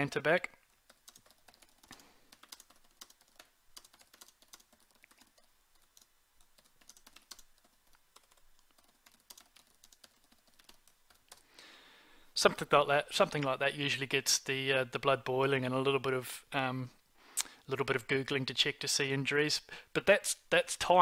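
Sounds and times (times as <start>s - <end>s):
computer keyboard typing: 0.8s - 11.4s.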